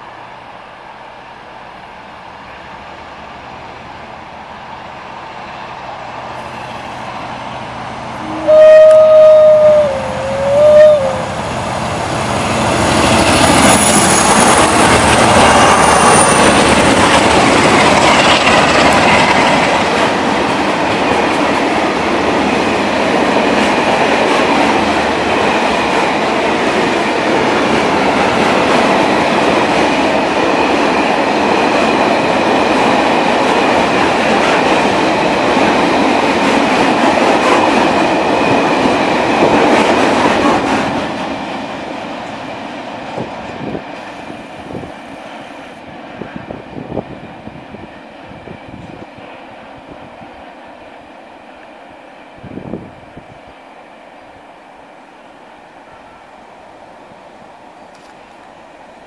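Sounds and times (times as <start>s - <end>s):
diesel locomotives passing: 0.0s - 59.0s.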